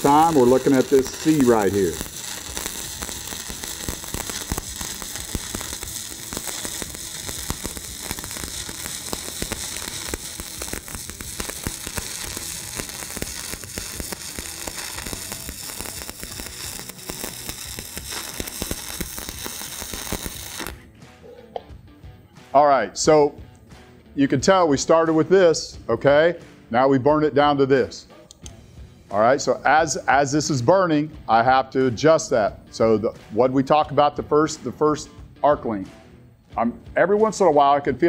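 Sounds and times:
welding arc crackling and sizzling: 0.0s - 20.8s.

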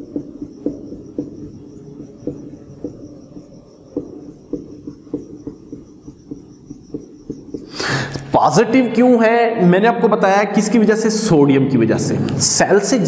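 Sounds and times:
marker tapping and scraping whiteboard: 0.0s - 8.3s.

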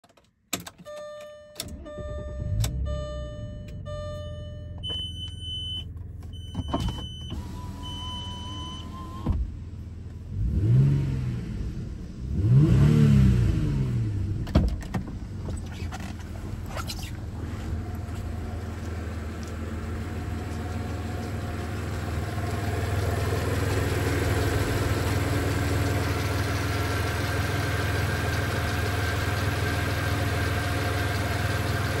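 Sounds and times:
car engine idling: 14.2s - 32.0s.

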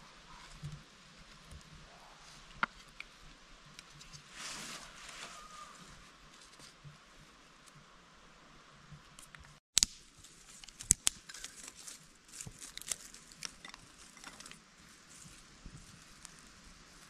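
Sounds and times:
crackles and sharp clicks: 8.9s - 14.6s.

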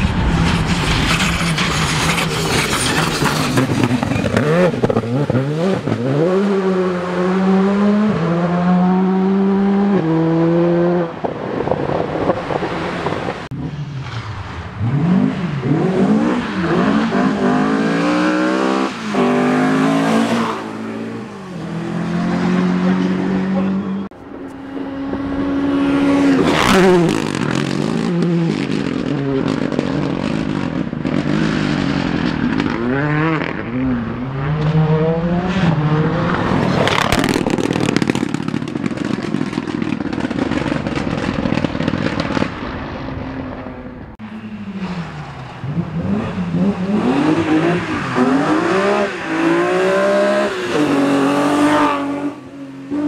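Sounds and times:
rally car engines revving: 0.0s - 42.6s, 43.5s - 53.0s
sharp cracks: 36.8s - 42.8s.

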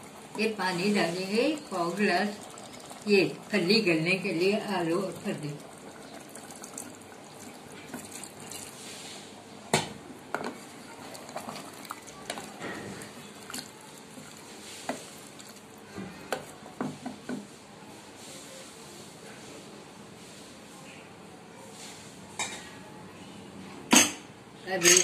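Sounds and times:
water splashing into a pot: 5.1s - 8.8s, 11.0s - 16.6s.

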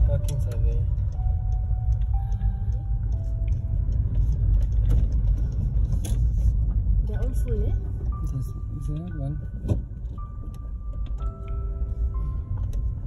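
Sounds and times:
car driving on gravel: 0.0s - 13.0s.

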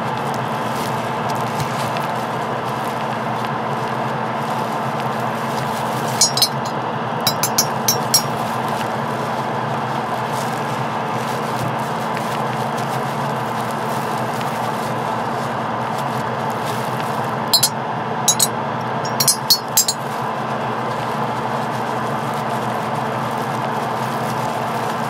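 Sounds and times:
small metal parts clinking: 6.2s - 6.7s, 7.3s - 8.3s, 18.3s - 20.0s.

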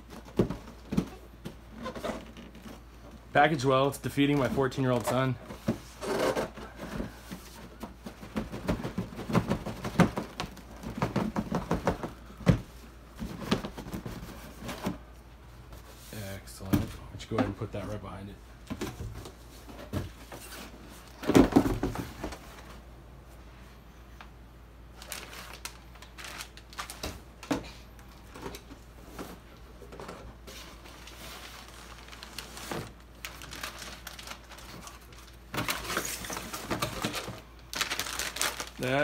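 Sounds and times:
cardboard boxes knocking and scraping: 0.0s - 2.9s, 4.4s - 15.0s, 18.7s - 22.8s
plastic wrapping crinkling: 24.9s - 27.2s, 30.8s - 39.0s.

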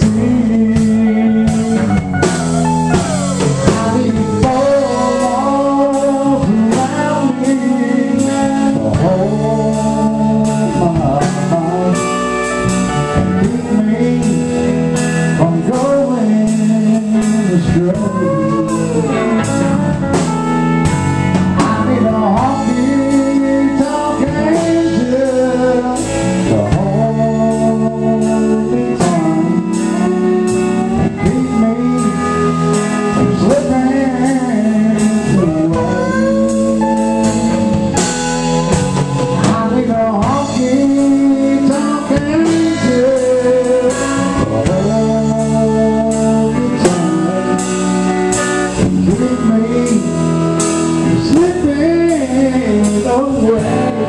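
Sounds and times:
country band playing: 0.0s - 54.0s
electric guitar lead line: 0.0s - 54.0s
steady drum beat: 0.0s - 54.0s.

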